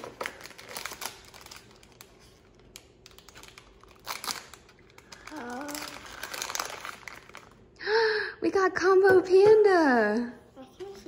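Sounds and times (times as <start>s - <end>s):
plastic bag crinkling and tearing: 0.0s - 7.8s.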